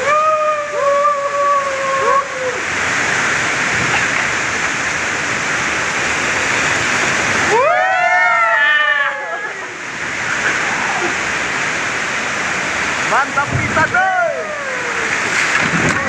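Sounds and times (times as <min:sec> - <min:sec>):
waterfall and whitewater rushing: 0:00.0 - 0:16.0
people yelling: 0:07.4 - 0:09.8, 0:13.8 - 0:15.3.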